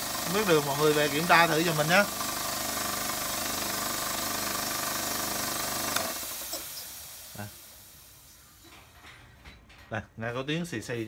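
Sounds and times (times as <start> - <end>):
electric air compressor running: 0.0 - 8.3
hiss of escaping air: 4.5 - 9.0.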